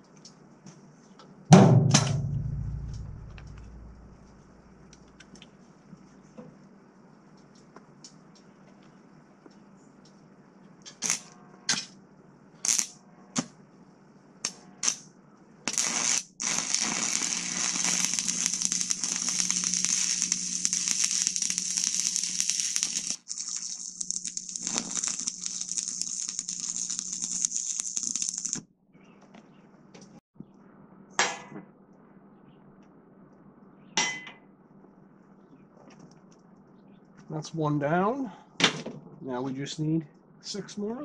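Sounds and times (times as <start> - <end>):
sharp knock: 1.5 - 4.2
welding arc crackling and sizzling: 10.9 - 11.3, 12.6 - 13.0, 15.7 - 28.6.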